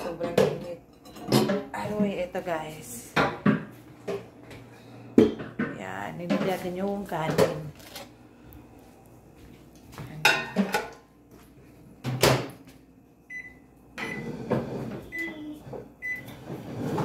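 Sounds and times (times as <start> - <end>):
microwave keypad beeps: 13.3 - 14.3, 15.1 - 16.3.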